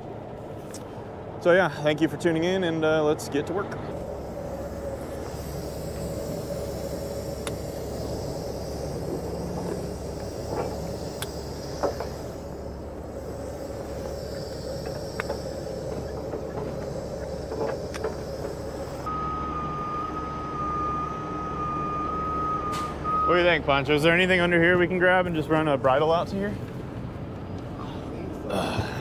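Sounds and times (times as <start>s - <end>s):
diesel engine idling: 0.0s - 29.0s
steady high tone: 3.9s - 24.5s.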